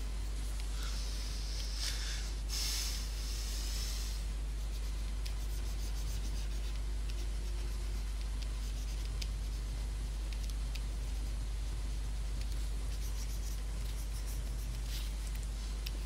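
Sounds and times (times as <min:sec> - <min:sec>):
stylus scratching on tablet: 0:04.4 - 0:16.0.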